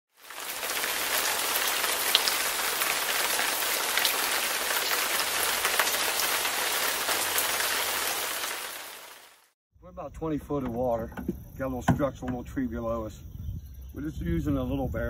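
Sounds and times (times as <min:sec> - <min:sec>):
hissing patter like rain: 0:00.1 - 0:09.6.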